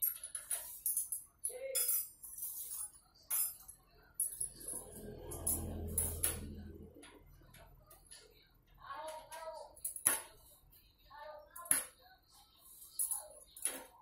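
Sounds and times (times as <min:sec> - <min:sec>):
low hum: 0:04.4 - 0:08.0.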